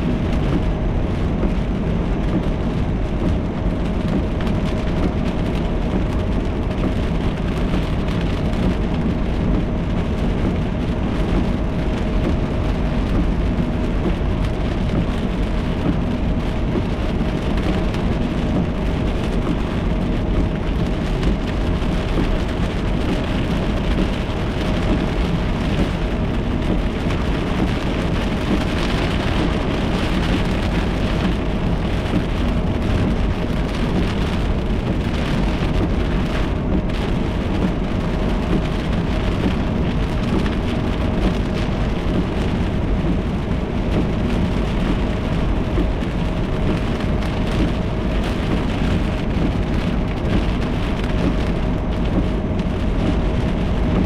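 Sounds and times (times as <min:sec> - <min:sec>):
heavy rain on car roof: 0:00.0 - 0:54.0.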